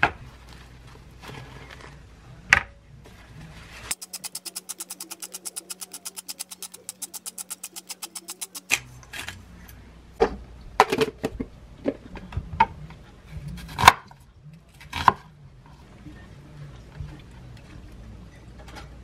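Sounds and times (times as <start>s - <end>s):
pepper shaker rattling: 3.9s - 8.8s.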